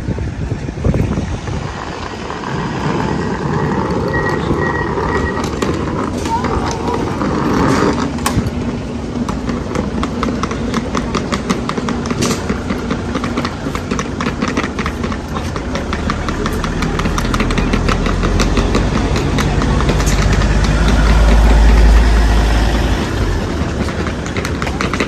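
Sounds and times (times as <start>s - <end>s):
tram equipment humming: 0.0s - 25.0s
low rumble: 16.5s - 24.4s.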